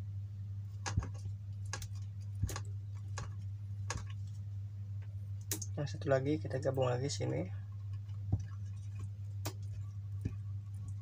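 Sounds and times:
steady low hum: 0.0 - 11.0
wire connections clicking: 0.8 - 4.4, 5.0 - 5.8.

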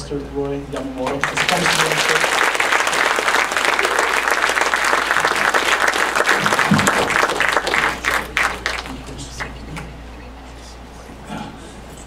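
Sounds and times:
congregation applauding: 0.8 - 9.9.

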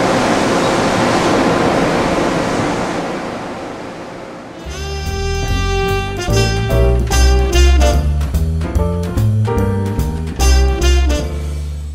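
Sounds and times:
jazz music: 4.6 - 11.9.

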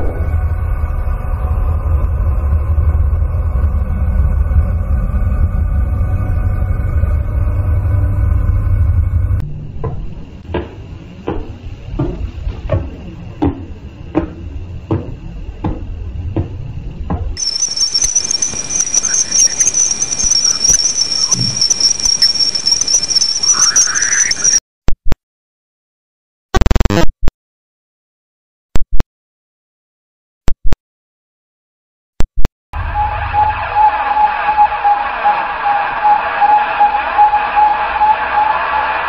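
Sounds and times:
low droning rumble with tones: 0.0 - 22.2, 32.8 - 39.0
high-pitched whine with crackle: 0.0 - 24.6, 26.6 - 27.1, 32.8 - 39.0
regular pulsar clicks: 11.2 - 24.6.

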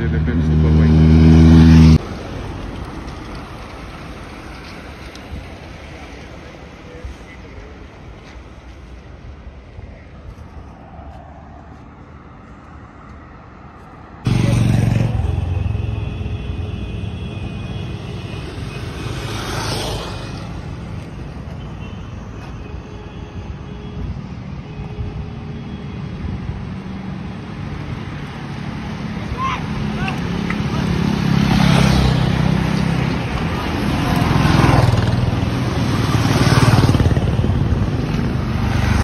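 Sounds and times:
motorcycle engine passing: 0.0 - 2.0, 14.3 - 16.8, 33.6 - 39.0
low traffic rumble: 0.0 - 39.0.

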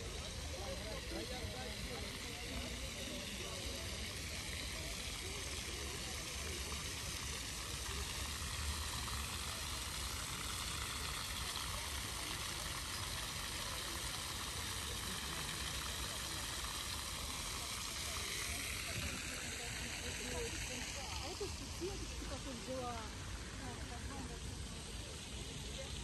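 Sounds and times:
continuous hiss: 0.0 - 26.0.

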